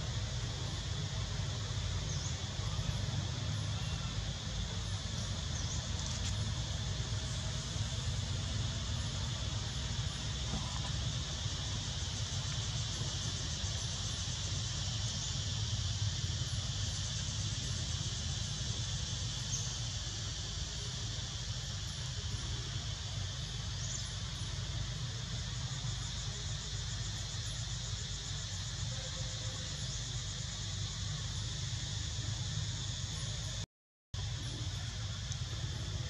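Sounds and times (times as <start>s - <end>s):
constant low rumble: 0.0s - 33.6s, 34.2s - 36.0s
high-pitched insect chorus: 0.0s - 33.6s, 34.2s - 36.0s.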